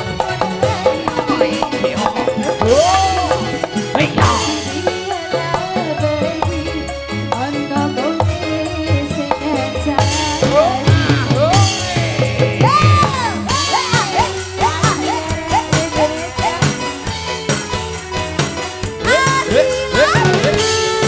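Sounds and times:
high wavering melody: 0.0s - 8.1s
band playing live: 0.0s - 21.0s
steady drum beat: 0.0s - 21.0s.

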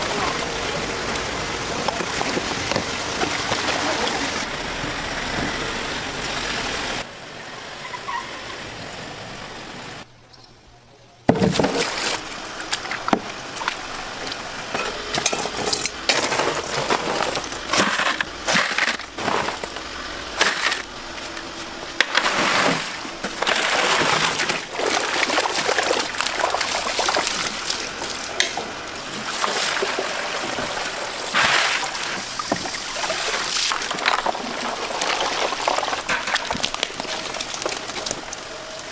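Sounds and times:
ice and tubs clinking: 11.3s - 13.7s, 14.6s - 38.6s
water splashing and pouring: 11.4s - 21.0s, 22.0s - 38.9s
water streaming from net: 22.1s - 38.9s.

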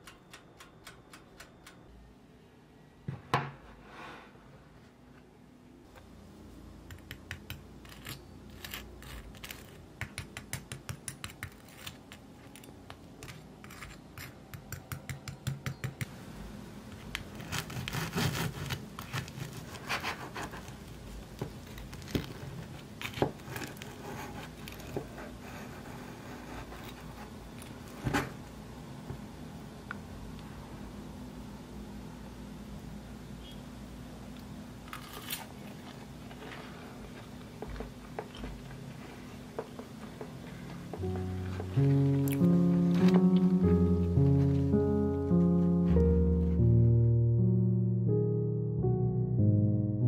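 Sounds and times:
knife sawing through waffle crust: 17.4s - 20.7s.

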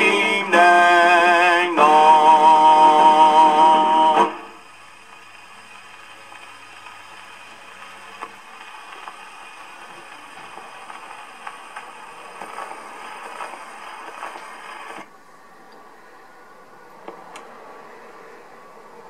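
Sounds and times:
record surface hiss and crackle: 0.0s - 19.0s.

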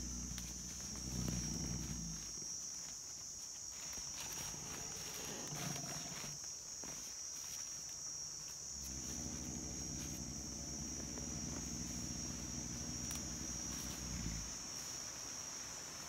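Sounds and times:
low steady rumble: 0.0s - 2.4s, 8.8s - 14.7s
insects shrilling: 0.0s - 7.4s, 8.6s - 16.0s
rustles in dry leaves: 0.0s - 16.0s.

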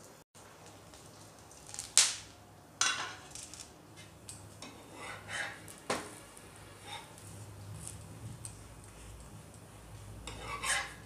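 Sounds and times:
spatula scraping pan: 4.6s - 5.7s, 6.8s - 7.3s, 10.0s - 11.0s.

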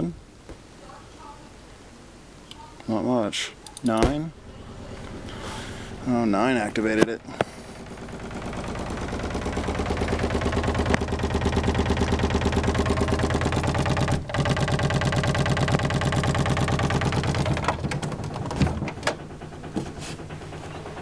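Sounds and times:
knocks and clicks: 4.0s - 21.0s
wooden door rattling in frame: 7.8s - 21.0s.

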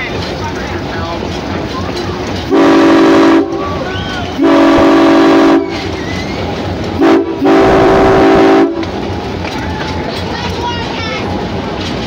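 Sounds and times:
train running rumble: 0.0s - 12.0s
locomotive air horn blasts: 2.5s - 3.6s, 4.4s - 5.9s, 7.0s - 8.9s.

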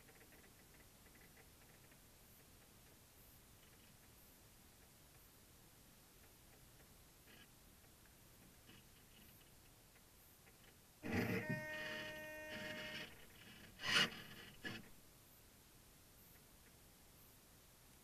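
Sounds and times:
servos whirring: 11.0s - 14.9s
short servo buzzes: 11.0s - 14.9s.

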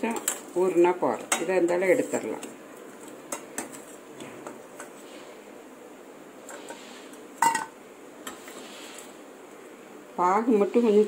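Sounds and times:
low background noise: 0.0s - 11.0s
ladle clinking against metal pot: 7.4s - 7.7s.

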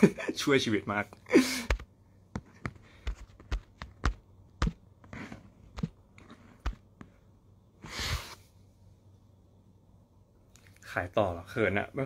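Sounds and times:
sharp taps and knocks: 1.7s - 7.2s.

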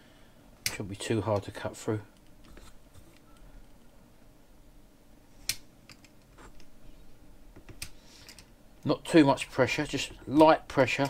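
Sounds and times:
faint handling sounds: 0.6s - 4.0s.

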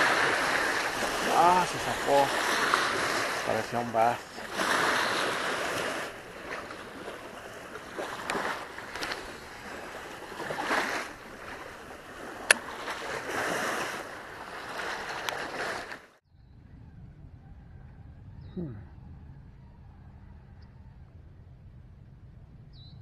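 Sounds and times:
small waves splashing on concrete: 0.0s - 16.2s
wind noise on microphone: 16.3s - 23.0s.

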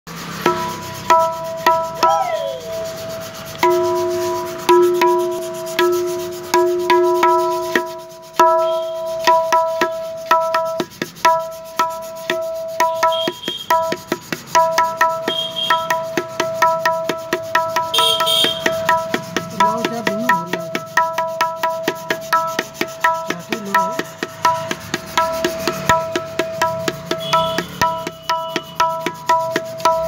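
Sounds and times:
tabla strokes ringing: 0.1s - 30.0s
lower ringing tone: 0.4s - 6.0s.

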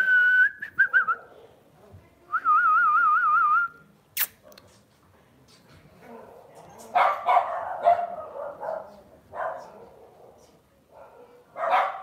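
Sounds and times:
person whistling: 0.0s - 1.2s
sharp click: 4.2s - 4.7s.

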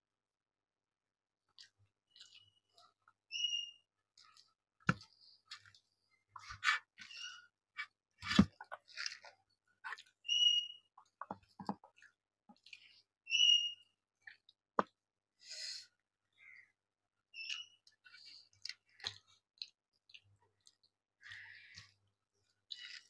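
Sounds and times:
wet mouth clicks and chewing: 1.5s - 3.2s, 4.2s - 13.1s, 17.4s - 23.0s.

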